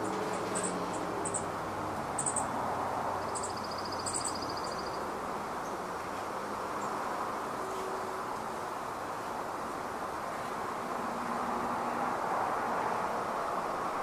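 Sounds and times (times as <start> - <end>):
road traffic hum: 0.0 - 14.0
rapid bird trill: 3.2 - 5.0
high bird chirps: 3.3 - 5.0.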